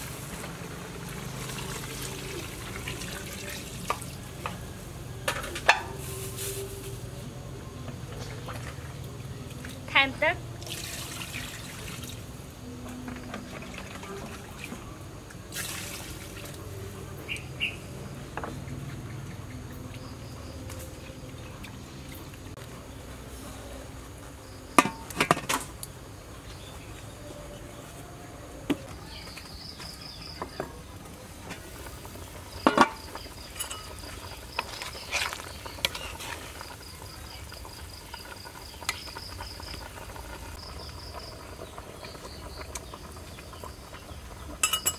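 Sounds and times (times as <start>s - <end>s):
water poured into metal pot: 0.0s - 4.7s, 10.6s - 12.4s, 13.2s - 14.8s, 15.4s - 16.7s
metal pot and lid clanking: 5.2s - 6.0s, 32.6s - 36.4s, 44.6s - 44.9s
insects trilling: 31.6s - 44.9s.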